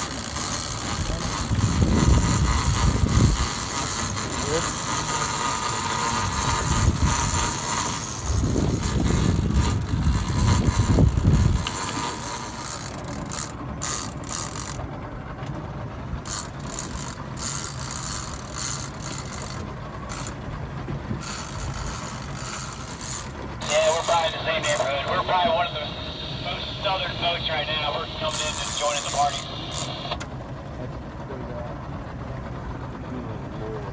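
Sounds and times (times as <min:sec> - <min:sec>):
fishing reel ratcheting: 0:00.0 - 0:14.8, 0:16.2 - 0:20.4, 0:21.2 - 0:23.4
low rumble: 0:23.4 - 0:33.9.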